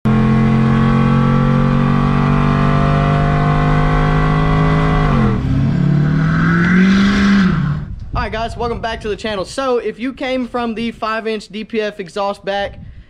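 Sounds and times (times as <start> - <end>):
pickup truck engine at high revs: 0.0 - 7.9.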